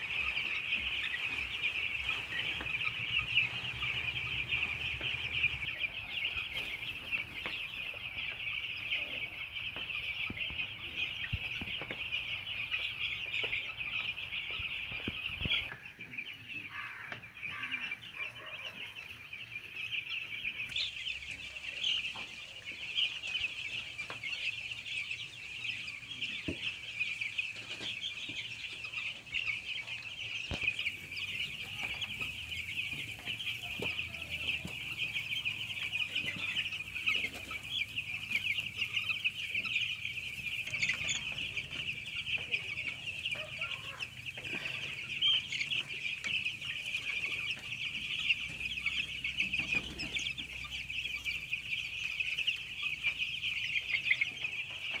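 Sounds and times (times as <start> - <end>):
chicks peeping: 0.0 - 55.0.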